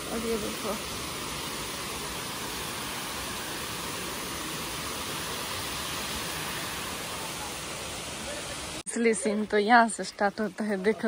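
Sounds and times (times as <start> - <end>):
water rushing over rocks: 0.0 - 8.8.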